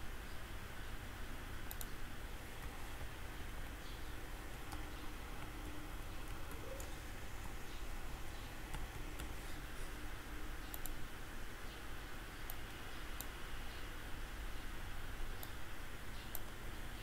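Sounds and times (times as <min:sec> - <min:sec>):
steady background hiss: 0:00.0 - 0:17.0
computer keyboard keystrokes: 0:01.7 - 0:02.0, 0:04.5 - 0:05.6, 0:08.7 - 0:09.4, 0:10.7 - 0:11.0.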